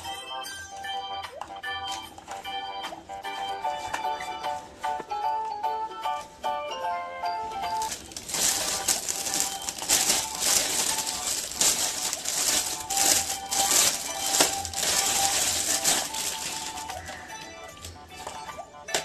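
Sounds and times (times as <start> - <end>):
quiet background music: 0.0 - 19.0
plastic wrapper crinkling: 7.5 - 19.0.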